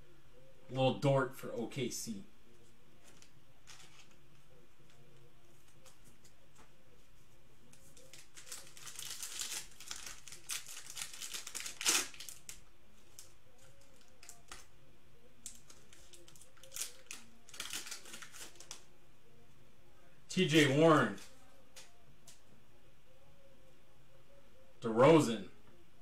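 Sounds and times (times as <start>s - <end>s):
foil wrapper crinkling: 3.0s - 4.2s, 7.8s - 14.7s, 15.4s - 18.9s
foil wrapper ripping: 8.0s - 13.3s, 15.4s - 18.9s.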